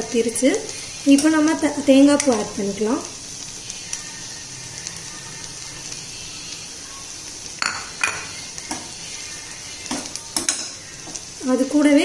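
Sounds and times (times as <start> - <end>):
faint sizzle: 0.0 - 12.0
spoon clinking against pan: 7.6 - 8.8, 9.9 - 10.8
spoon stirring in a pan: 7.6 - 11.2.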